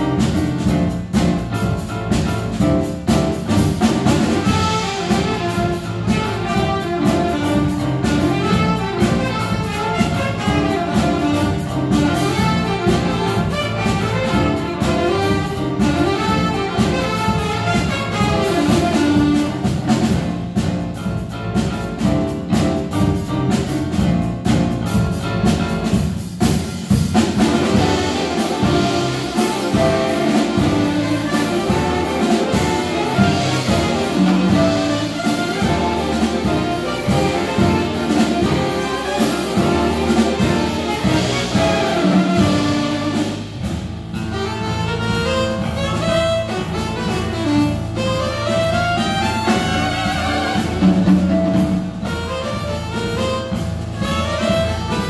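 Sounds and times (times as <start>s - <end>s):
brass section: 0.0s - 24.8s, 25.4s - 55.0s
bass: 0.0s - 55.0s
piano: 0.0s - 55.0s
saxophone section: 3.8s - 20.1s, 27.4s - 55.0s.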